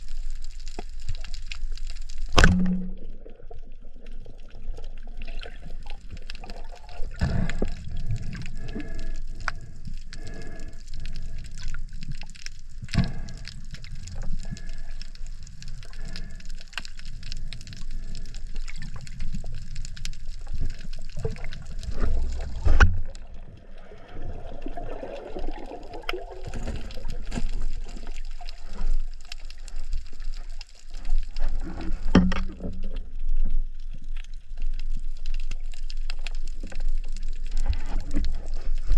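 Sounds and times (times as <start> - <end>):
underwater water noise: 0.0 - 38.9
underwater thud: 2.3 - 3.3, 21.9 - 23.2, 31.6 - 32.8.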